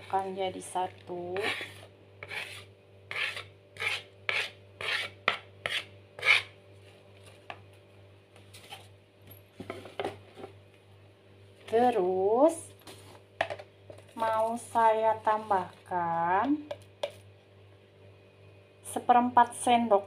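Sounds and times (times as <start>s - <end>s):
steady low hum: 0.0s - 20.0s
spoon scraping wooden cutting board: 1.4s - 6.5s.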